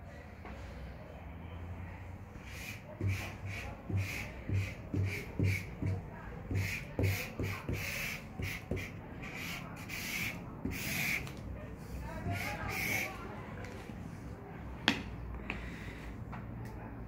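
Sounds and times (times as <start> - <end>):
marker scratching on paper: 2.4 - 13.2.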